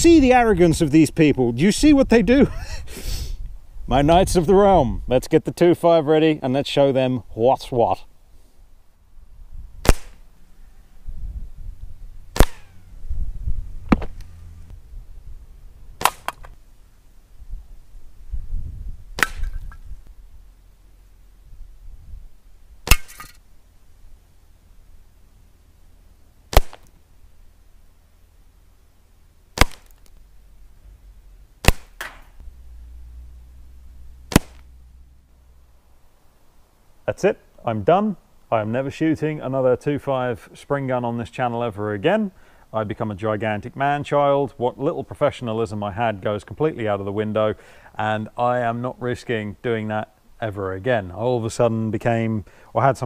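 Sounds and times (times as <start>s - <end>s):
low rumbling noise: 8.7s - 31.7s, 32.3s - 37.0s
air rifle shots: 9.8s - 10.3s, 12.3s - 12.8s, 16.0s - 16.6s, 19.2s - 19.7s, 26.5s - 27.0s, 29.6s - 30.0s, 31.6s - 32.4s, 34.3s - 34.7s.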